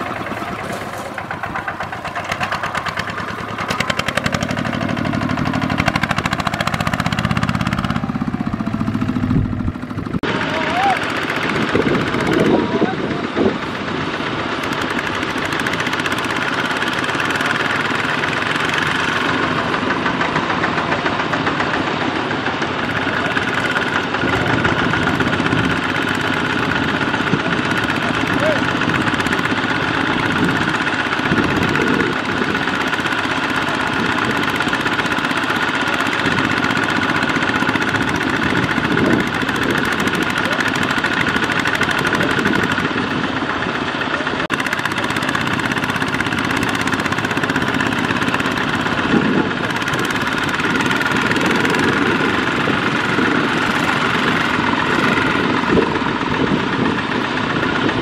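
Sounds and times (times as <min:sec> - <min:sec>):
diesel engine running under load: 0:00.0 - 0:58.0.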